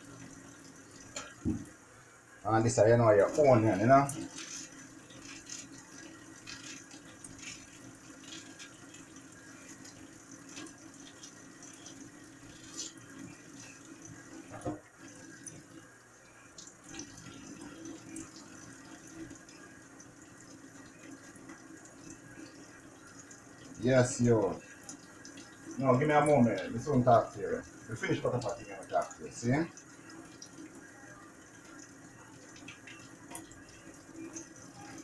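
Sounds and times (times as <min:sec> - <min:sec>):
knock: 0:01.4 - 0:01.6
faucet running into a metal sink: 0:02.6 - 0:35.0.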